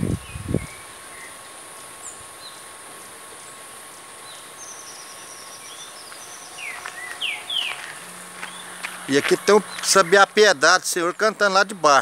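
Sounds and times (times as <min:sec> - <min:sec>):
high insect drone: 0:00.0 - 0:12.0
thin high bird notes: 0:05.1 - 0:09.2.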